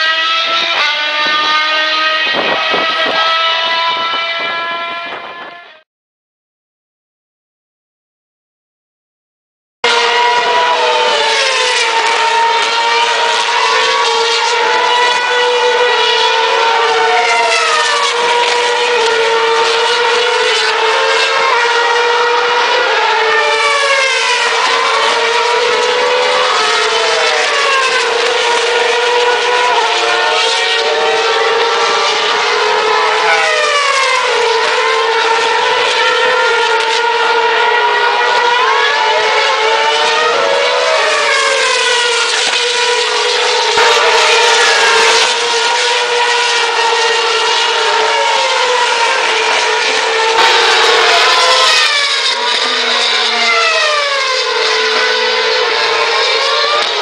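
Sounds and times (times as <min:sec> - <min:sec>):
racing car engines screaming: 0:00.0 - 0:05.8, 0:09.8 - 0:57.0.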